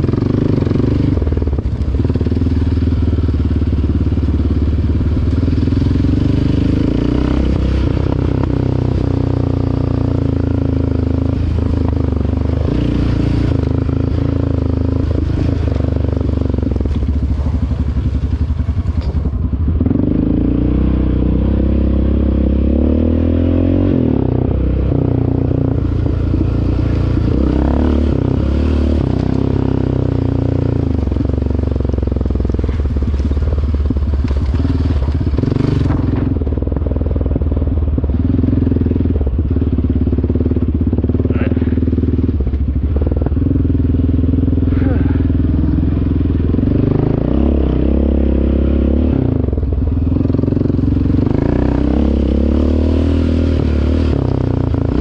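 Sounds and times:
atv engine revving: 0.0 - 55.0.

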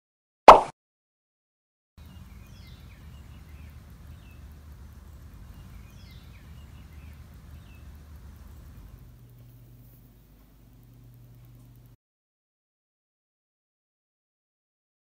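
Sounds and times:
bird calling: 2.0 - 11.8
faint low hum: 2.0 - 12.0.

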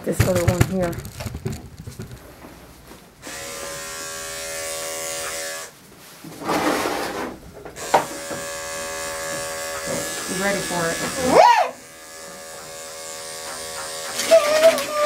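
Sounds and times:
electric clippers humming: 3.2 - 5.7, 7.8 - 15.0.

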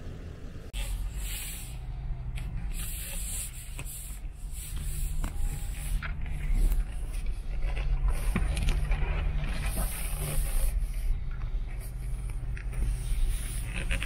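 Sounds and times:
low engine rumble: 0.0 - 14.0
sharp scratches and cracks: 2.4 - 14.0
branches scraping along car: 2.6 - 14.0.

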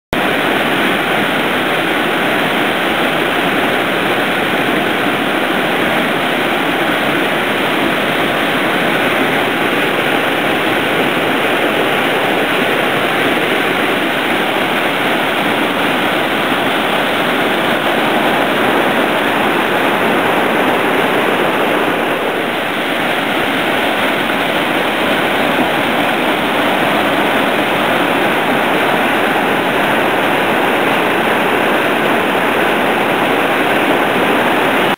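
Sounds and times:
river rapids rushing: 0.1 - 34.9.

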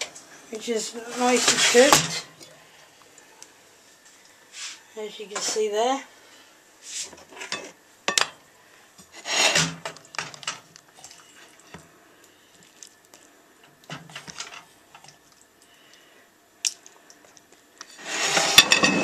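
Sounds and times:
spoon scraping a saucepan: 17.9 - 19.0.

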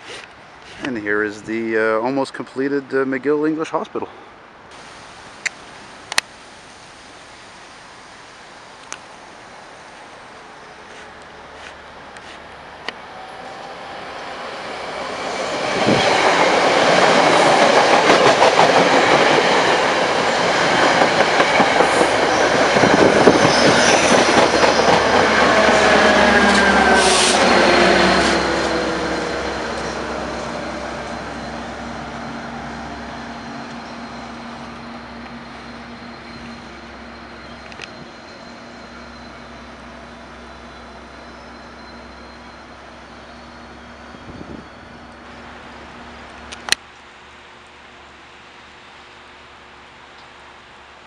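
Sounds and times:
train passing at speed: 4.7 - 51.0.

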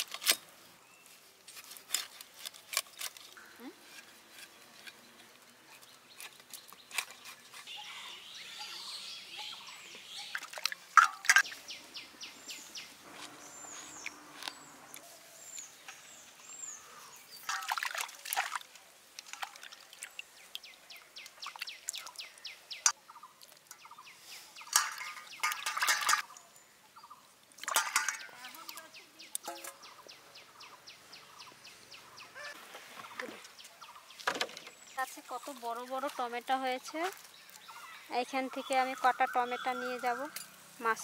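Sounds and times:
bird chirping: 4.9 - 17.6, 20.3 - 27.3, 28.0 - 35.6, 37.1 - 41.0
knife scraping fish: 5.7 - 7.8.

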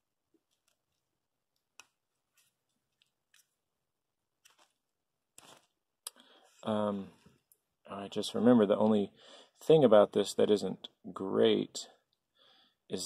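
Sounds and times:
faint clicks of small parts handled: 0.3 - 3.6, 4.4 - 7.7.

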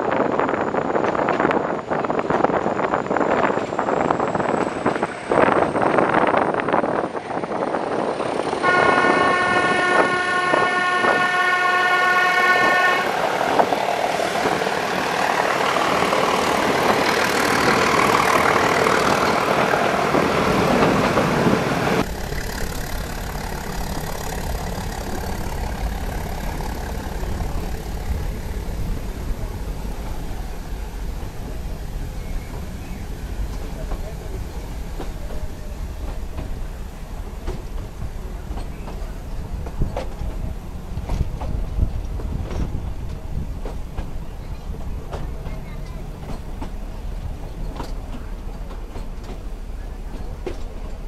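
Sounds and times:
wind: 0.0 - 51.0
train wheels clattering on track: 4.5 - 51.0
train horn blast: 8.6 - 13.9.

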